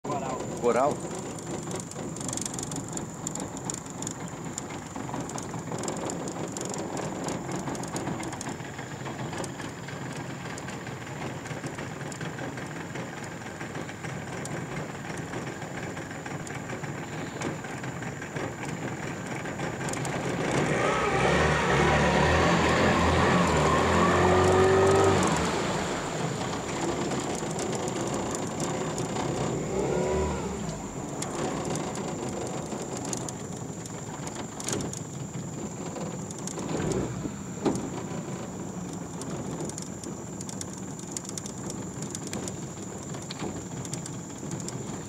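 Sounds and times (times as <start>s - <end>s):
boat motor idling: 0.0s - 45.0s
rising motor whine: 20.2s - 27.4s, 29.0s - 32.7s, 36.6s - 38.6s.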